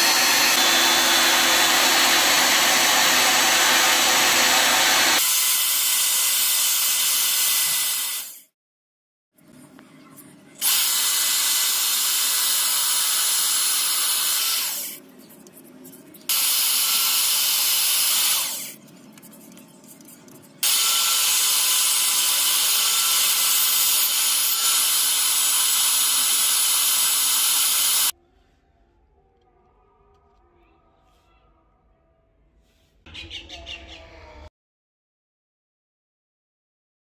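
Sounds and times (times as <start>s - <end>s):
electric drill running: 0.0s - 8.4s, 10.6s - 15.0s, 16.3s - 18.8s, 20.6s - 28.1s.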